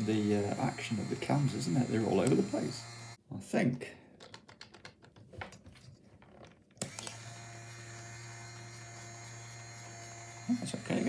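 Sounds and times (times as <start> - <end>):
small electric motor humming: 0.0 - 3.2, 6.8 - 11.0
plastic toy clicks and taps: 4.2 - 5.2.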